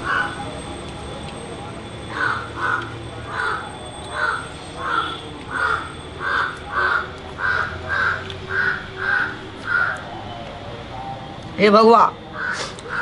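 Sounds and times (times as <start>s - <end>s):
crow cawing: 0.0s - 0.4s, 2.1s - 10.1s, 12.4s - 13.0s.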